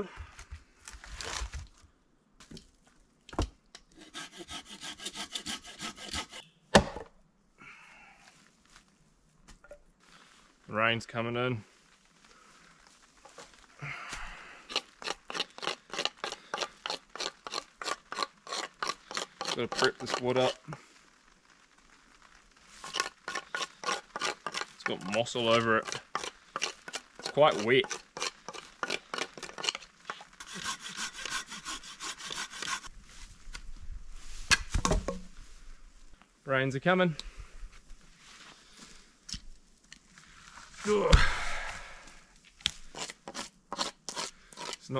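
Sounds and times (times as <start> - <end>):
knife scraping stick: 4.0 - 6.5, 14.7 - 20.7, 22.8 - 32.9, 42.9 - 44.9.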